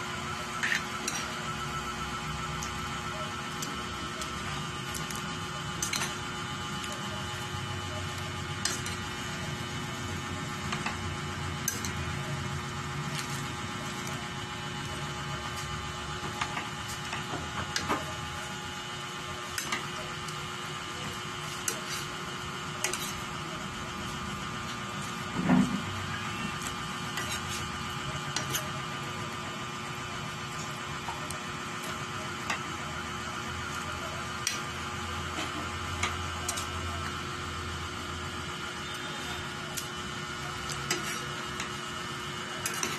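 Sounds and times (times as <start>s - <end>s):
steady hum: 0.0s - 42.9s
metal spoon scraping a pan: 22.8s - 23.2s, 27.1s - 27.7s, 40.8s - 41.7s, 42.6s - 42.9s.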